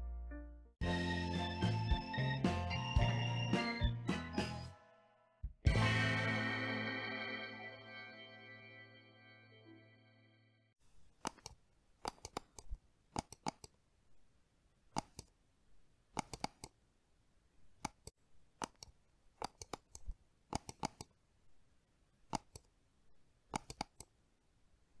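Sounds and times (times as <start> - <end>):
sharp clicks: 11.2 - 13.8, 14.9 - 15.3, 16.1 - 16.8, 17.8 - 21.1, 22.3 - 22.7, 23.5 - 24.1.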